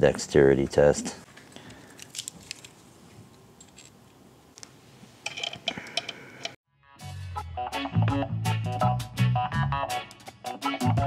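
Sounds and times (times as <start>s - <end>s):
metal parts clicking and tapping: 2.0s - 2.8s, 3.6s - 4.0s, 4.6s - 6.6s
metallic clinks: 3.6s - 4.0s.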